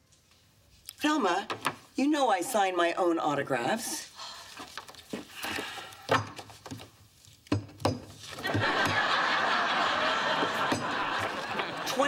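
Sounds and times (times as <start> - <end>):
photo prints rustling: 4.3 - 7.4, 10.3 - 12.0
studio audience laughing: 8.4 - 12.0.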